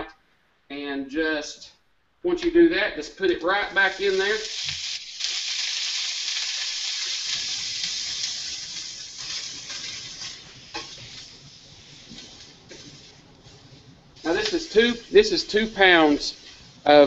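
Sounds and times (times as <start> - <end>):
meat sizzling in a frying pan: 3.6 - 13.2, 14.2 - 16.9.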